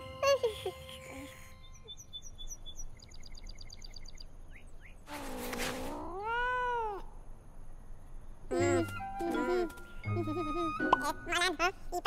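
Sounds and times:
cartoon kitten yawning meow: 6.1s - 7.0s.

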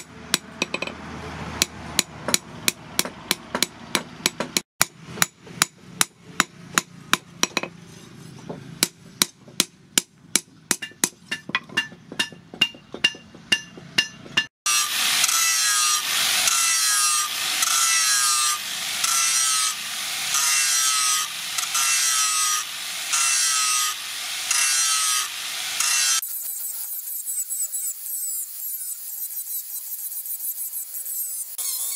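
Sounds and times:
angle grinder sanding blade: 14.7s - 31.9s.

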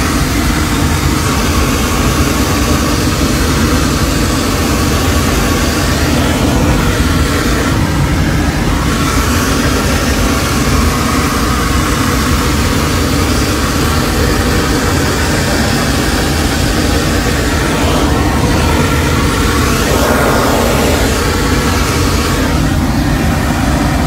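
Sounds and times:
roar of rushing air and engine: 0.0s - 24.0s.

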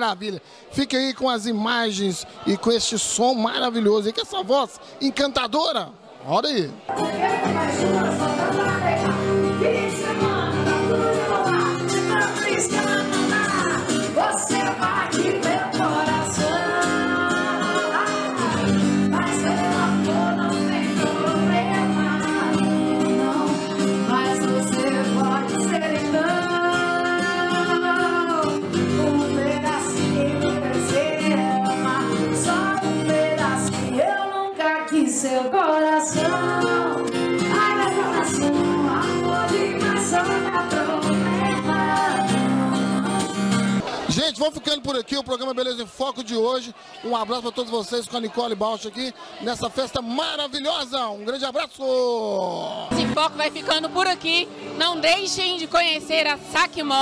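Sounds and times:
strummed acoustic guitar: 6.9s - 34.2s, 36.0s - 44.3s, 52.9s - 55.4s
woman singing into microphone: 6.9s - 43.8s.

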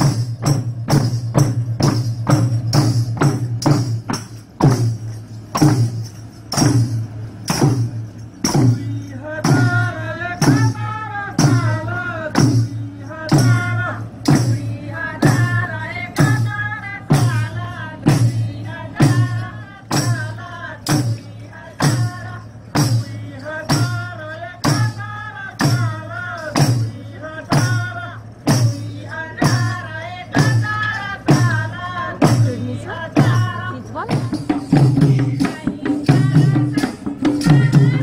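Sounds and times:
hand drums steady beat: 0.0s - 38.0s
voices singing: 8.4s - 38.0s.

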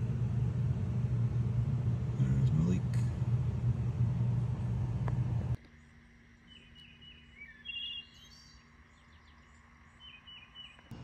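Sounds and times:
birds chirping and whistling: 6.5s - 10.9s.

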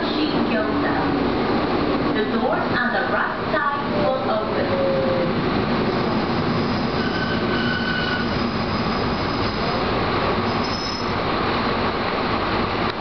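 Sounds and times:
electric train rumbling on track: 0.0s - 13.0s
high squeal: 6.4s - 9.8s, 10.4s - 11.2s.

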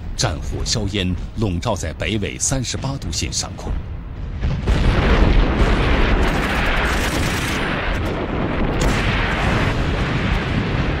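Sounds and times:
artillery shell explosions: 4.3s - 11.0s
gunfire cracks: 4.6s - 11.0s.

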